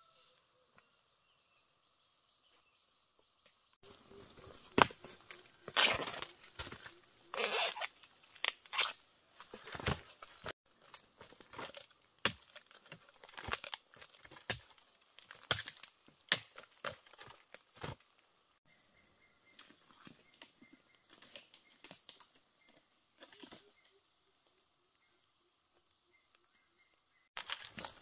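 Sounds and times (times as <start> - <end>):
crinkling handling noises: 3.8 - 18.5, 27.4 - 28.0.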